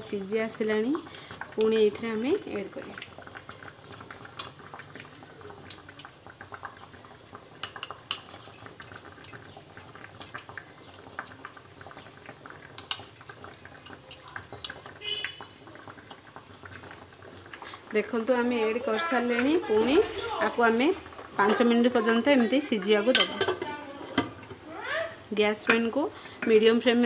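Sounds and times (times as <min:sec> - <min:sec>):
water simmering and bubbling: 0:00.0 - 0:23.0
metal spoon clinking on bowl: 0:07.3 - 0:10.6, 0:11.2 - 0:17.3.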